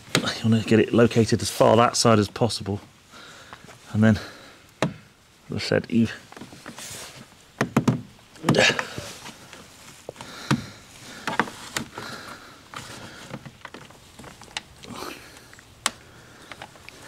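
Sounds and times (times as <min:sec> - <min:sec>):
soft rustling: 0:05.2 - 0:07.6, 0:08.3 - 0:17.0.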